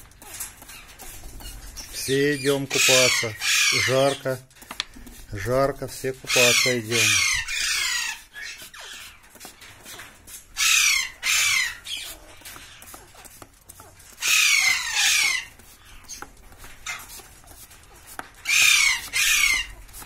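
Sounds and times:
parakeets screeching: 0.0 - 17.3, 18.2 - 20.0.

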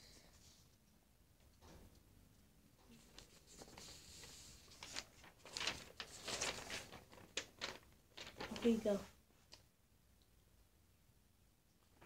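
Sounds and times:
paper rustling: 2.9 - 9.2.

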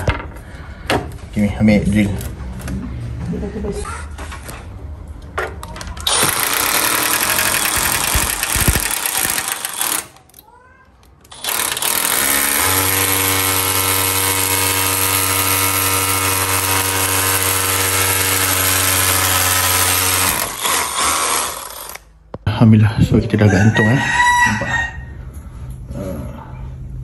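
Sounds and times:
cordless drill boring through metal: 6.1 - 10.2, 11.3 - 22.1.

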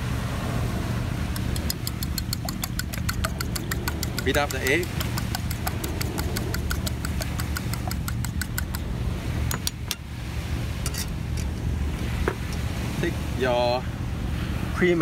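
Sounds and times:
fork beating eggs in bowl: 1.4 - 8.8.

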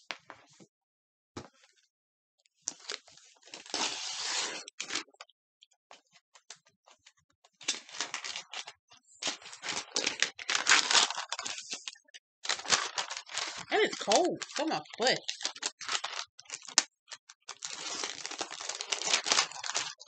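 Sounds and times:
paper and plastic rustling: 7.6 - 20.0.

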